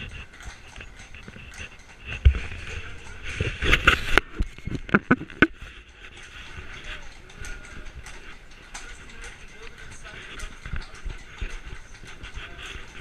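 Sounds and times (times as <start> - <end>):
carriage wheels rattling: 0.0 - 13.0
hooves clopping on cobblestones: 0.0 - 13.0
people talking: 6.4 - 13.0.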